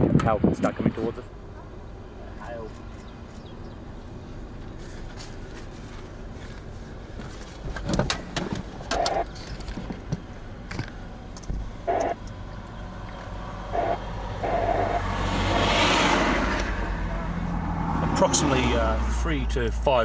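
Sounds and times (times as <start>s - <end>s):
vehicle engine idling: 1.0s - 15.8s
vehicle rushing past: 11.9s - 19.6s.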